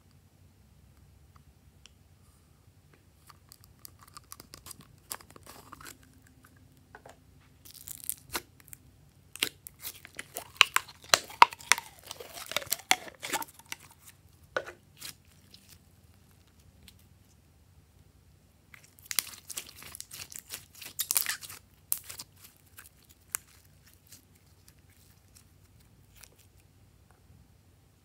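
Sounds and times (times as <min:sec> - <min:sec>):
plastic bottle crackling and crinkling: 0:09.4 - 0:15.8.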